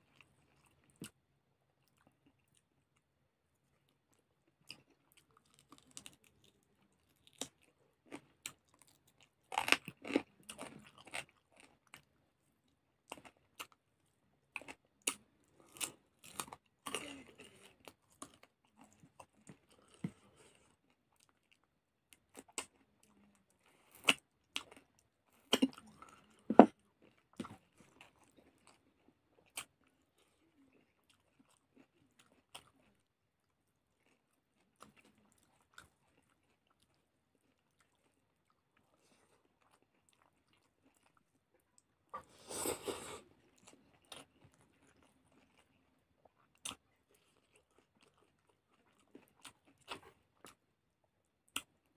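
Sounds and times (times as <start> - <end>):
chewing and crunching chicken: 0.0 - 51.9.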